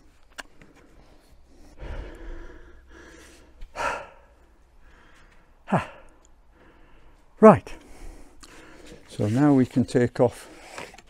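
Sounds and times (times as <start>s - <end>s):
person grunting: 5.6s - 6.2s
person sighing: 5.6s - 6.2s.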